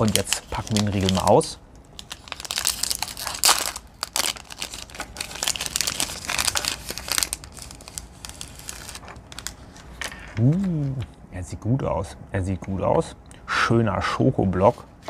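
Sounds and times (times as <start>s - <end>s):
wrapper tearing and crinkling: 0.0s - 1.4s, 2.0s - 10.3s.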